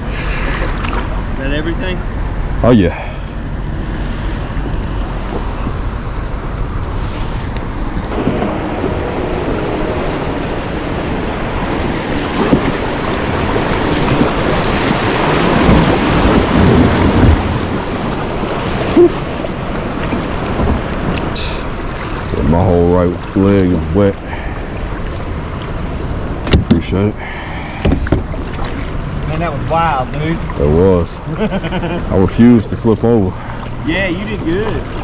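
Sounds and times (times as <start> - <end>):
river water rushing and splashing: 0.0 - 35.0
knocks against kayak hull: 26.4 - 26.8, 27.8 - 28.6.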